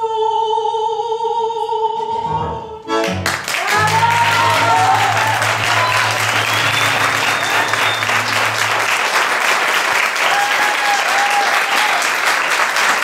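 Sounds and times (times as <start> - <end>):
audience applauding: 3.1 - 13.0.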